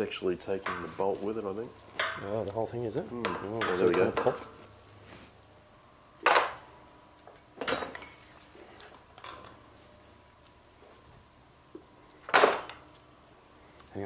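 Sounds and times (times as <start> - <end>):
metallic clanks of tools on engine: 3.2 - 4.4.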